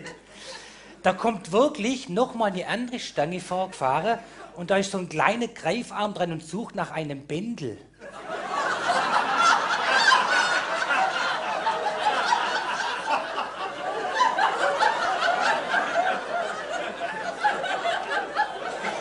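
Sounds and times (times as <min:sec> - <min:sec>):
audience laughing: 0:08.0 - 0:19.0.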